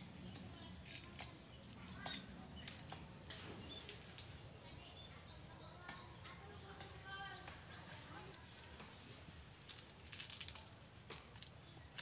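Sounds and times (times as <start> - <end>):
dry leaves crackling and snapping: 0.2 - 4.6, 7.8 - 12.0
bird chirping: 1.5 - 9.2.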